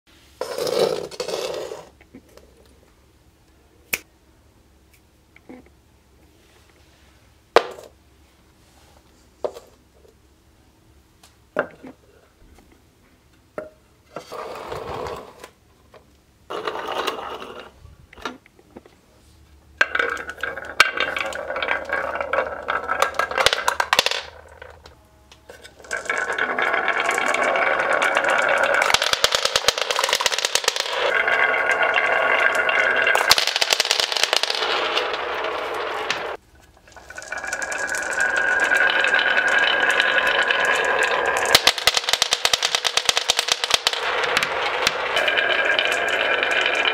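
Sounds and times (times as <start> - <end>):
marbles clattering on hard floor: 0.4 - 1.9, 16.5 - 17.8, 19.8 - 46.9
marbles rattling down wooden run: 19.8 - 25.0, 25.7 - 46.9.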